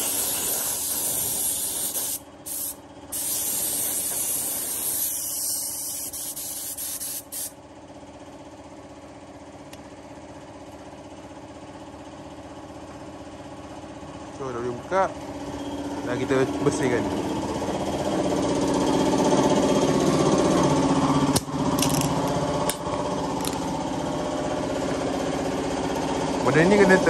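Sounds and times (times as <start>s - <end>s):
spray gun hissing: 0.0s - 7.5s
air compressor humming: 0.0s - 8.0s, 9.8s - 27.0s.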